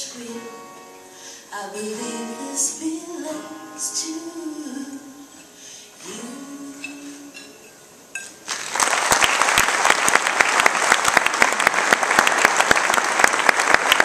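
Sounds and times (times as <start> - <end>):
audience applauding: 8.4 - 14.0.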